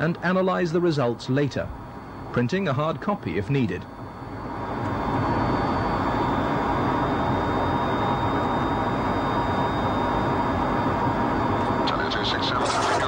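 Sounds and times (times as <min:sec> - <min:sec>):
faint high whine: 0:00.0 - 0:13.0
engine and airflow rush: 0:04.2 - 0:12.5.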